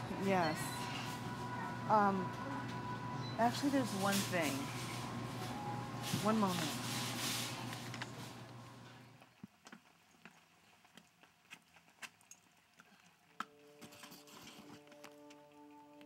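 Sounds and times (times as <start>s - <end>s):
faint clicking footsteps: 7.5s - 16.0s
soft music with held notes: 13.4s - 16.0s.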